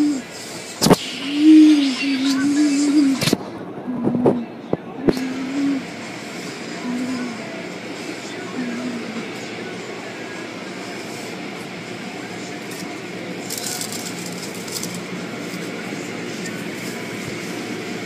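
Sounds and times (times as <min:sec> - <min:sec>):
high hissing: 0:00.0 - 0:03.2
car wash machinery rumbling: 0:00.0 - 0:18.0.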